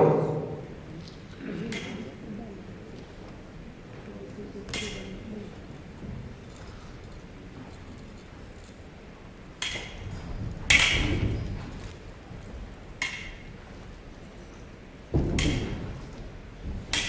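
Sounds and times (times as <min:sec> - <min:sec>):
fencing blades clashing: 0:01.6 - 0:02.2, 0:04.6 - 0:05.3, 0:09.5 - 0:12.0, 0:12.9 - 0:13.7, 0:15.2 - 0:16.0.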